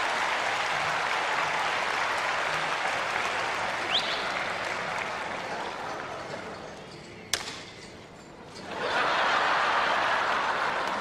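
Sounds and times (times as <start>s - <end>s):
audience applause: 0.0s - 6.2s
sharp smack: 7.4s - 7.7s.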